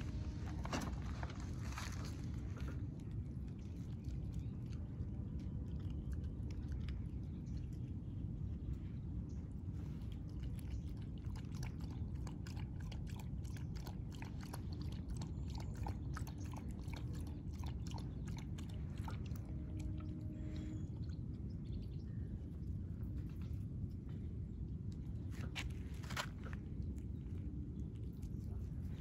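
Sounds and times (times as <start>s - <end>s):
steady low rumble: 0.0s - 29.0s
dog lapping from a bowl: 1.8s - 8.7s, 9.5s - 20.9s.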